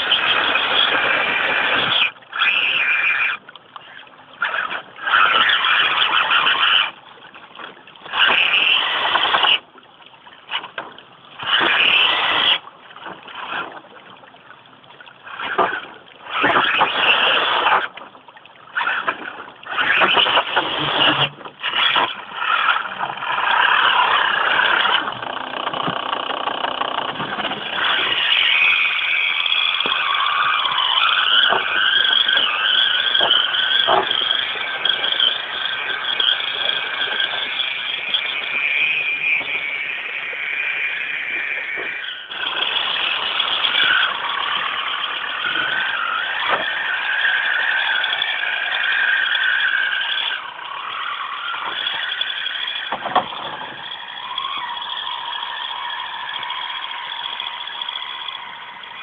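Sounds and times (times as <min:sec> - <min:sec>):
electric motor whining: 0:19.7 - 0:59.0.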